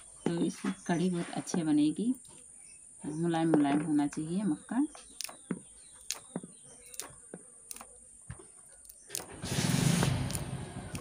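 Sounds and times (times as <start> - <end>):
engine running: 9.2 - 11.0.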